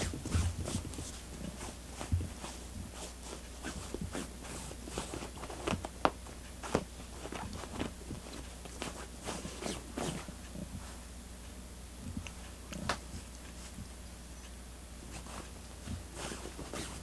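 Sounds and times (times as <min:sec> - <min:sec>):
cat scratching fabric bed: 0:00.0 - 0:10.3, 0:15.1 - 0:17.0.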